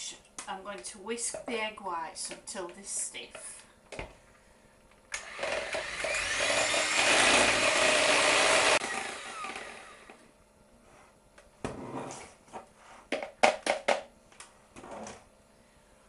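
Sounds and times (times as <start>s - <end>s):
electric hand mixer whisking: 5.2s - 10.2s.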